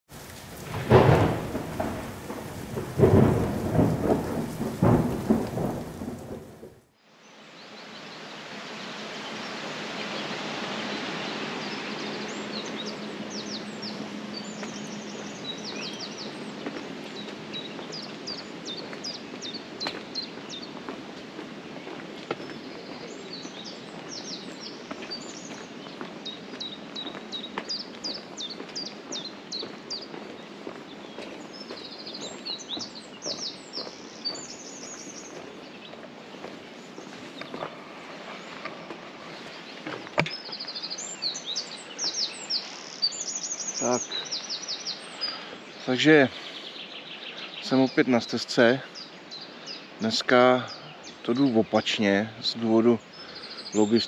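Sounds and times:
small birds chirping: 0.1s - 6.6s, 7.2s - 54.0s
thunder-like rumbles: 0.1s - 7.0s
river water rushing: 7.6s - 42.5s.

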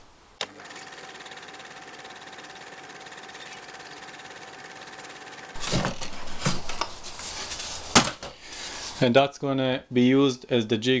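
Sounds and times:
power tool motor whining: 0.4s - 5.8s.

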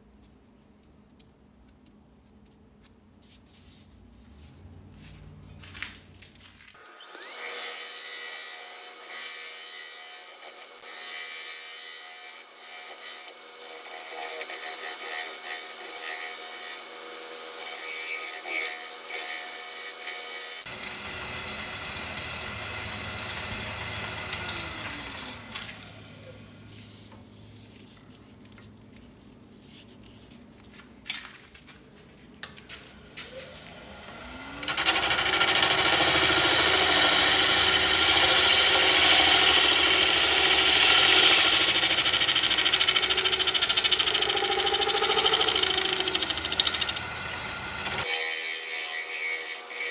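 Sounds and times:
wood lathe spinning: 20.6s - 26.5s, 33.4s - 48.2s
gouge cutting wood: 34.7s - 48.2s.

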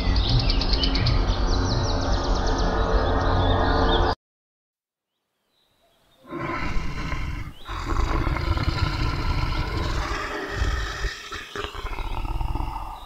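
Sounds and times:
lion roaring and growling: 6.2s - 13.0s.

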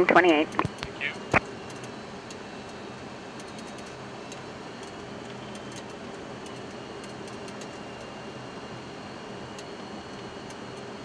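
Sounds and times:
faint high whine: 0.0s - 11.0s
rushing airflow and engine noise: 0.0s - 11.0s.

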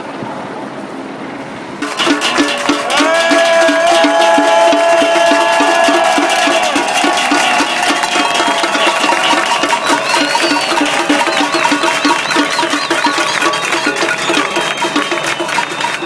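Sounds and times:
banging metal pots and lids: 1.8s - 16.0s
crowd clapping: 1.8s - 16.0s
long held shouts: 2.7s - 14.9s.

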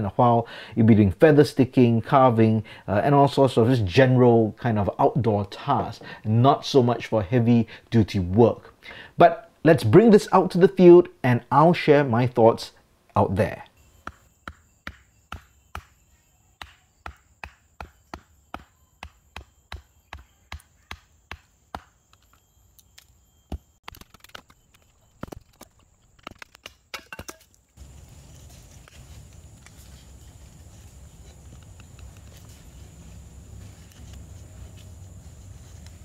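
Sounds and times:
low background noise: 0.0s - 15.3s, 27.0s - 36.0s
wood splitting cracks: 23.8s - 27.6s.

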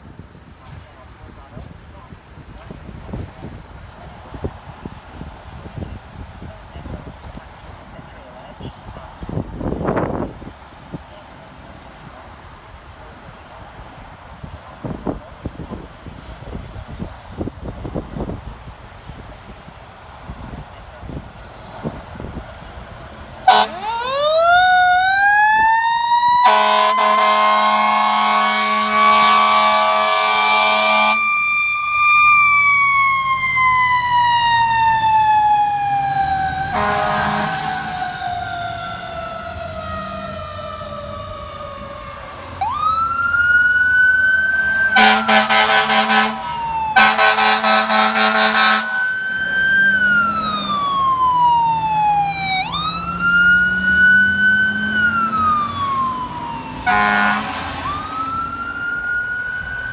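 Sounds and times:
fire engine siren wailing: 20.3s - 59.9s
air horn blasts: 23.5s - 24.0s, 26.4s - 31.3s, 36.7s - 37.9s, 44.9s - 49.1s, 56.9s - 57.8s.

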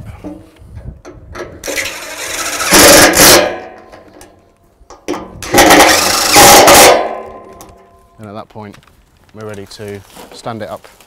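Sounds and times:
impact driver tightening bolts: 5.4s - 6.6s.

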